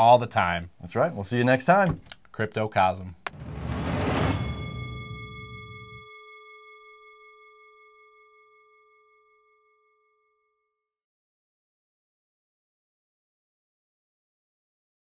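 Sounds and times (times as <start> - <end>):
metal gong ringing: 3.3 - 8.9.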